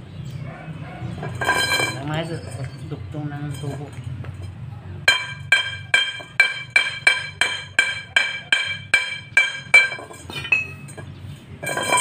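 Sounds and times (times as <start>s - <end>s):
hammer rapping on steel pipe: 5.1s - 10.9s.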